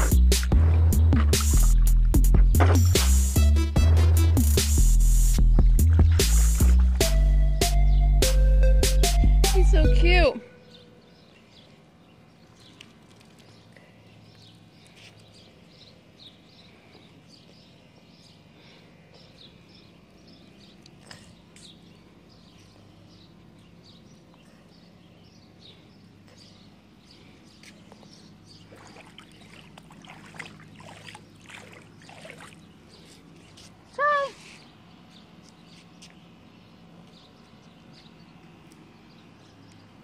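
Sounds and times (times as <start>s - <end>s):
water splashing and sloshing: 0.0s - 3.1s, 5.6s - 7.3s, 27.7s - 33.6s
small birds chirping: 4.8s - 8.3s, 9.5s - 40.0s.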